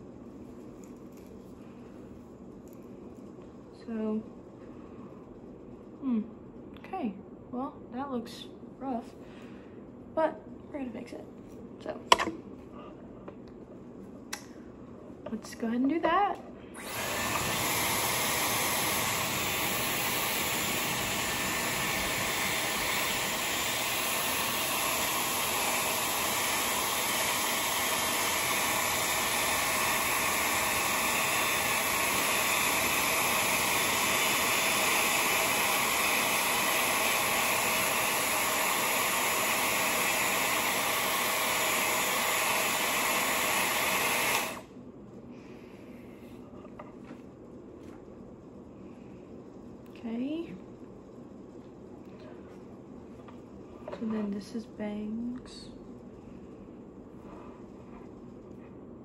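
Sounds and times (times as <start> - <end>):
hair styler blowing air: 16.7 - 44.7.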